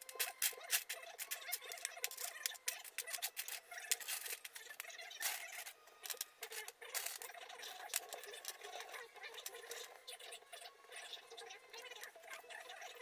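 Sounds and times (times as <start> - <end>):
metal screws clicking on wood: 0.0 - 9.9.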